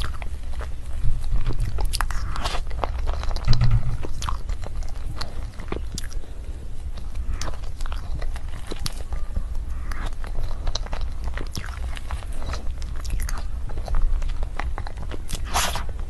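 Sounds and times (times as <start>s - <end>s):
wet chewing: 0.0s - 16.0s
mouth clicks and smacks: 1.3s - 6.2s, 9.9s - 16.0s.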